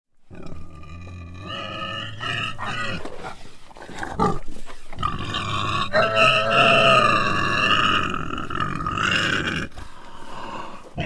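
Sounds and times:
animal squealing: 0:05.1 - 0:09.6.

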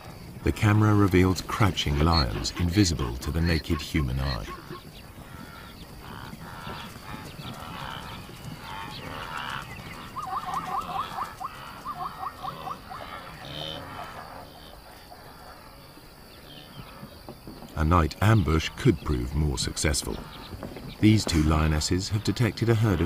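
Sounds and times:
wild animals calling: 0:00.0 - 0:17.2.

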